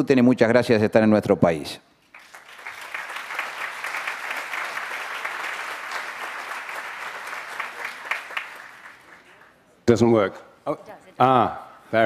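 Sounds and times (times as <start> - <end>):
audience applauding: 2.1 - 9.7.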